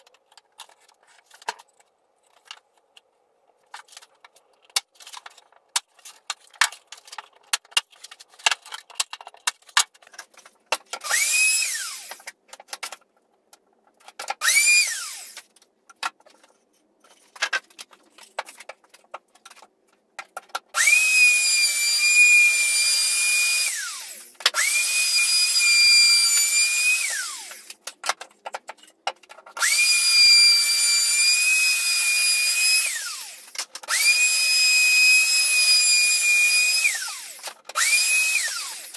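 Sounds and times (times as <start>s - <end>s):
wood router motor whine: 11.0s - 12.2s, 14.4s - 15.4s, 20.8s - 27.7s, 29.6s - 38.9s.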